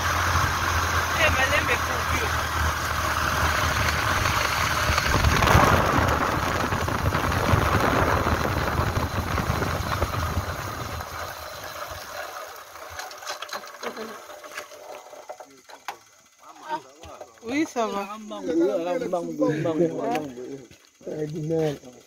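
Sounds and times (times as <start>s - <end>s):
vehicle engine running: 0.0s - 18.3s
wind rush on microphone: 3.2s - 11.4s.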